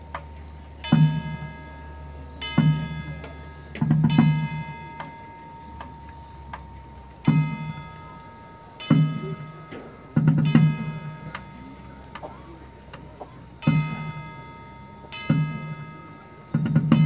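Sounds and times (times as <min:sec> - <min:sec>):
marching band chords: 0:00.8 - 0:14.3.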